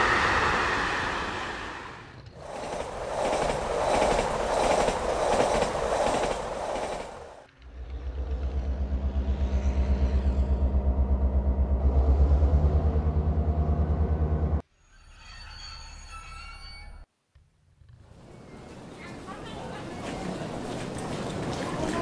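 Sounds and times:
train rumble with fast pulse: 0.0 - 14.6.

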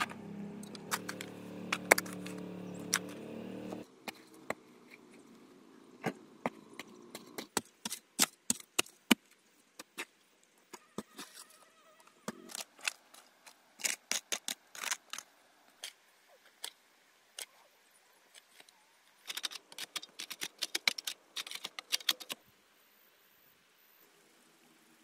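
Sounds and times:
metal hoe chopping clay soil: 0.0 - 3.8, 6.0 - 9.2
clods knocking and rattling: 19.2 - 22.4.

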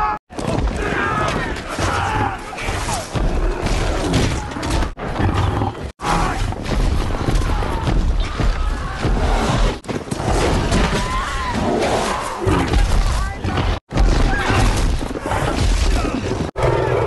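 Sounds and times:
cavalry fighting: 0.0 - 17.0
animal roars: 16.1 - 17.0.

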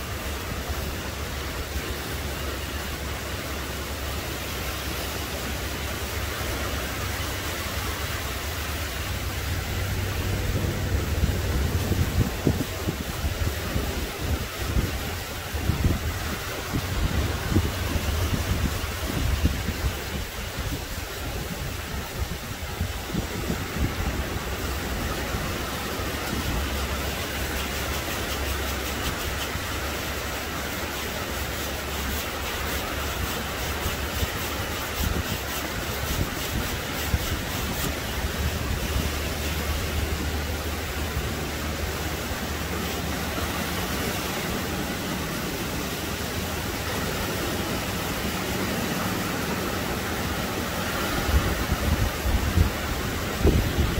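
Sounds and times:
waves washing up a beach: 0.0 - 53.9
wind on microphone: 7.6 - 30.2, 32.0 - 40.0, 50.6 - 53.9.

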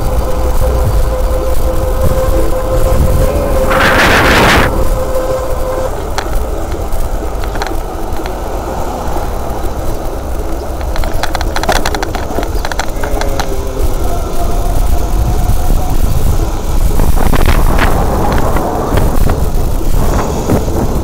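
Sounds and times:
street traffic: 0.0 - 21.0
wind and road noise: 0.0 - 21.0
cluster of clicks: 5.6 - 15.1.

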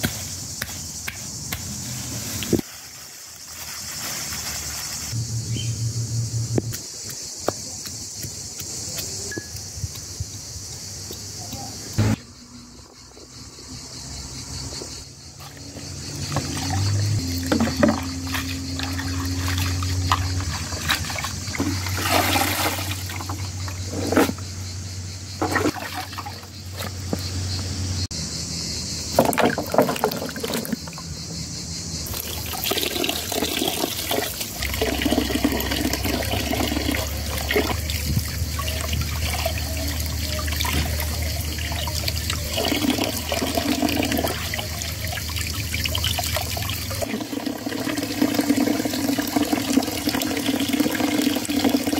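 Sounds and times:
water splashing and dripping: 15.5 - 23.9, 25.4 - 27.2, 32.1 - 51.9.

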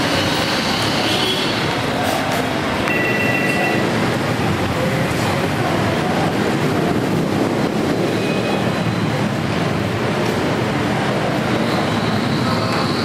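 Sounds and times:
busy street traffic: 0.0 - 13.0
brief high tone: 2.8 - 4.0.

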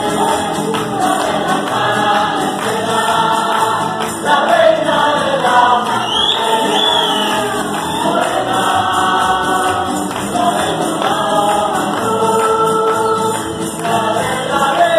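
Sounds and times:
group singing in chorus: 0.0 - 14.9
strummed bandurrias and guitars: 0.0 - 14.9.

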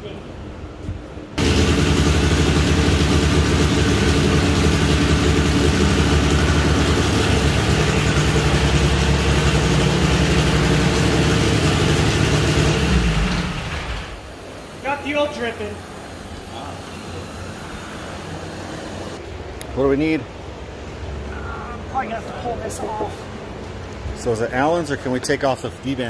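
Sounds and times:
car engine running loud: 1.4 - 14.3.

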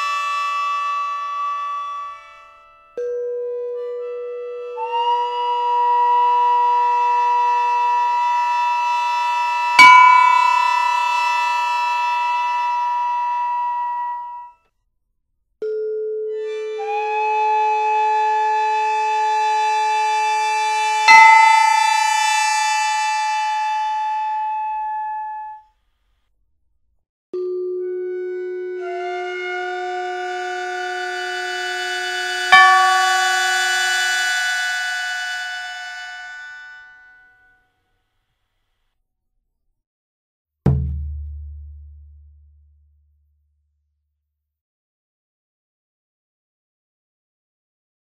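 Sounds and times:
long held wind instrument notes: 0.0 - 14.5, 16.3 - 25.4, 27.8 - 37.4
sharp percussion strike: 9.8 - 11.6, 21.1 - 22.6, 32.6 - 34.2, 40.7 - 42.9.

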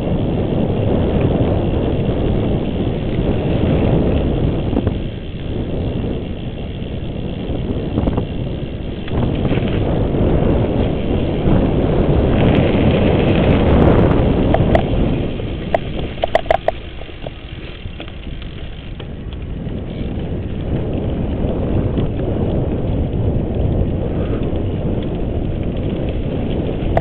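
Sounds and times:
bike rattling clicks: 0.0 - 27.0
wind buffeting microphone: 0.0 - 27.0
bike squeaks: 14.5 - 17.9.

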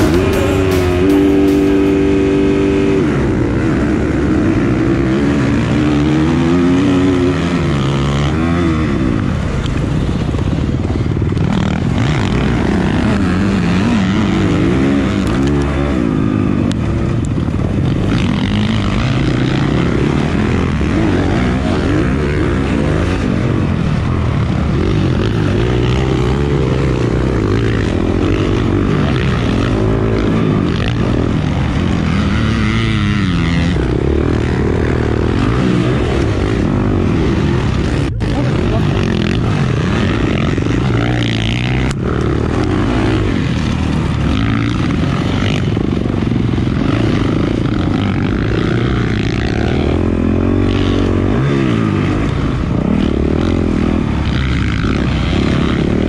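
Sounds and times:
motocross engine revving: 0.0 - 9.6, 11.4 - 56.0.

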